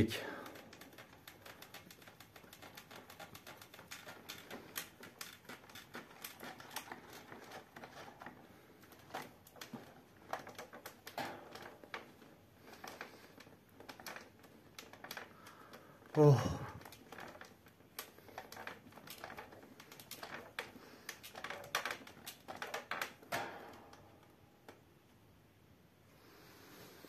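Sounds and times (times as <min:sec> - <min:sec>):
rattling and clicking: 0:00.0 - 0:25.4.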